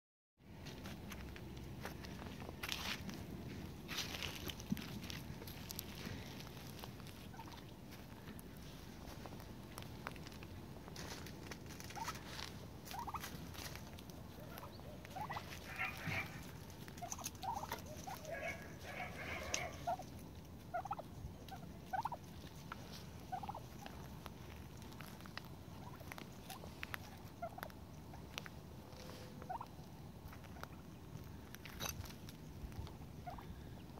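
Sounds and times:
turkeys chirping: 2.6 - 33.9
faint ticks and rustles: 3.9 - 33.6.

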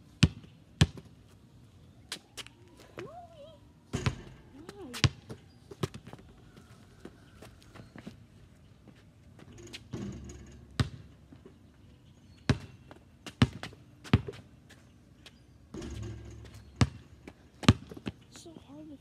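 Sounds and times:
basketball bouncing on pavement: 0.2 - 1.2, 3.9 - 6.4, 9.4 - 11.6, 12.4 - 14.5, 15.7 - 18.2.

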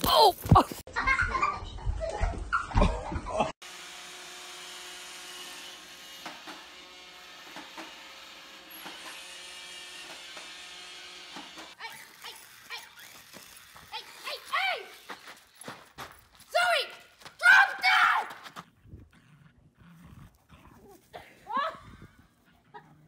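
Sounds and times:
robot vacuum motor whir: 5.4 - 15.1.

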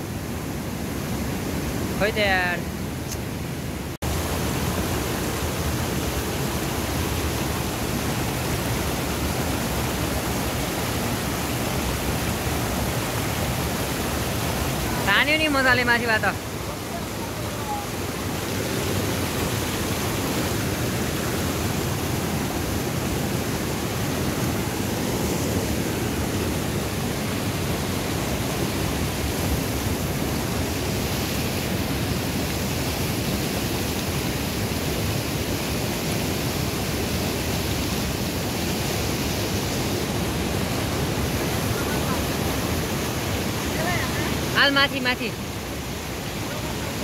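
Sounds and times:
river water rushing over stones: 0.0 - 47.0.

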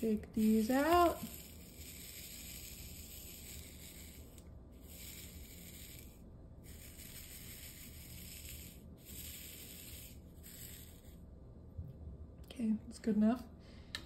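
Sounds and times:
plastic beads rattling in a tray: 0.2 - 11.1.

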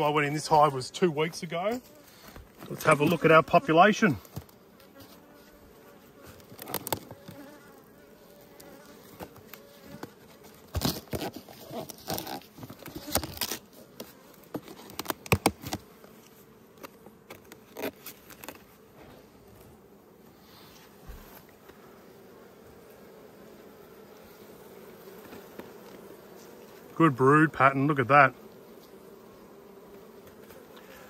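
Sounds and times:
honeybees buzzing: 0.0 - 31.0
hive frames scraping and knocking: 1.3 - 7.7, 8.5 - 19.8, 25.1 - 27.0, 29.8 - 31.0.

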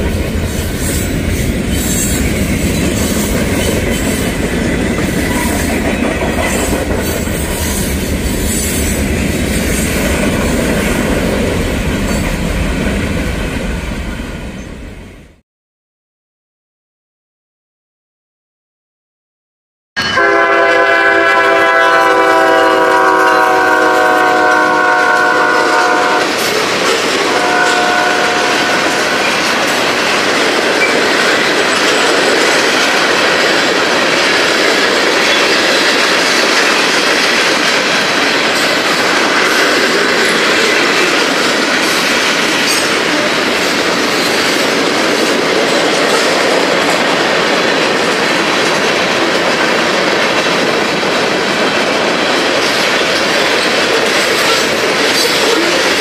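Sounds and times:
wheels clacking over rail joints: 0.0 - 9.3
freight train horn: 20.0 - 26.3, 27.2 - 29.4.

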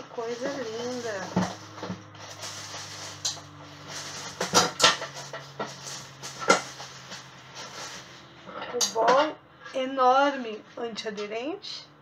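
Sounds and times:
plastic film crinkling: 0.0 - 8.3.

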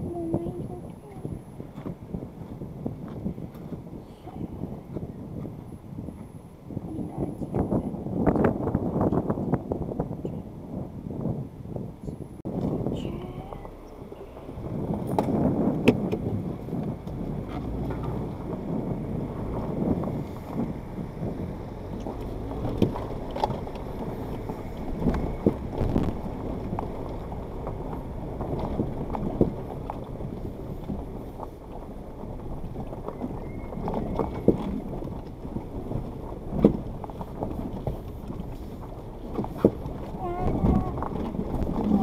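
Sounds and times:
engine rumbling: 0.0 - 42.0
wheels knocking over rocks: 13.5 - 42.0.

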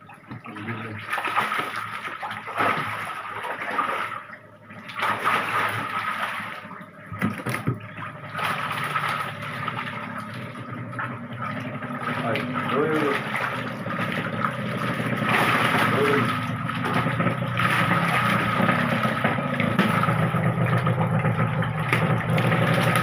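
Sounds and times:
shallow water splashing: 0.0 - 23.0.

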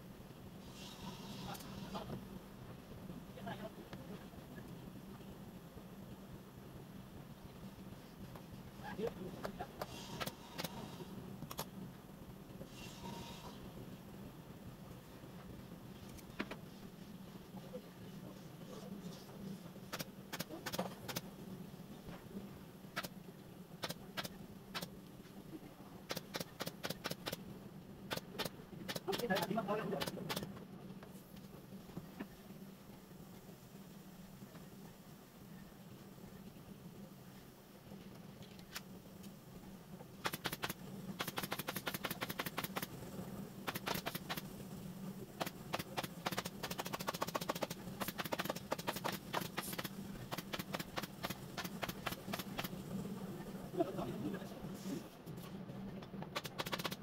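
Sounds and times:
pneumatic staple gun firing: 40.2 - 42.9, 43.7 - 44.4, 56.4 - 57.0.

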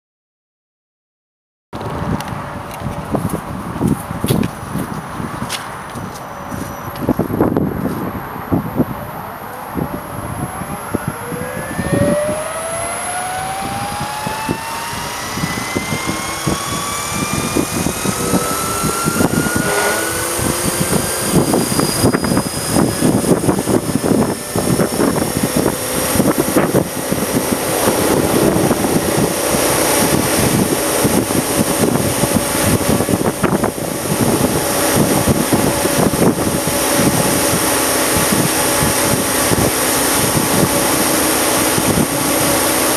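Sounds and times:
wind buffeting: 1.8 - 42.9
rc helicopter motor whine: 8.8 - 42.9.

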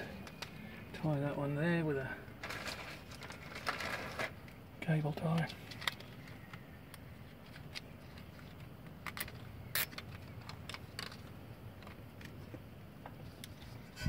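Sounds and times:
low steady background hum: 0.0 - 14.0
handling noises: 2.2 - 4.6.

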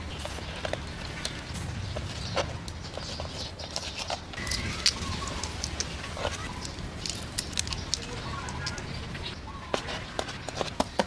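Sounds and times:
shells snapping and crackling: 2.3 - 9.0.

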